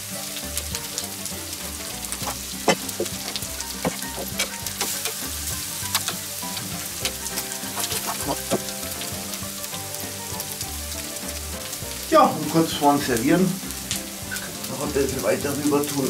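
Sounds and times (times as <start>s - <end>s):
meat sizzling on a grill: 0.0s - 16.0s
metal tongs clicking on grate: 2.2s - 8.2s.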